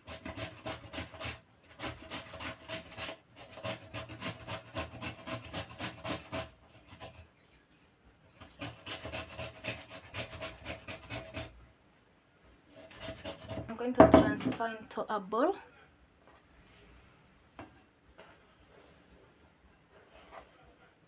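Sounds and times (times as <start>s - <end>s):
potato rasping on a grater: 0.0s - 7.3s, 8.3s - 11.6s, 12.7s - 13.7s.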